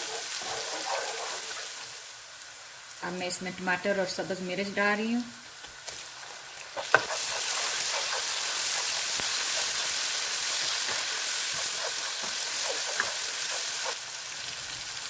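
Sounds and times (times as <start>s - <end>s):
spatula scraping frying pan: 0.0s - 1.9s, 5.9s - 14.0s
food sizzling in hot oil: 0.0s - 15.0s.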